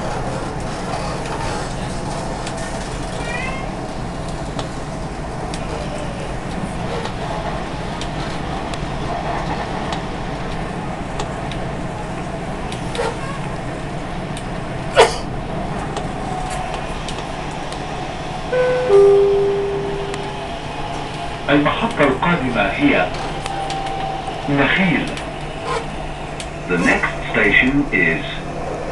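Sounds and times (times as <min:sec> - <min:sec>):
metro car running noise: 0:00.0 - 0:28.9
two-note falling chime: 0:18.6 - 0:20.7.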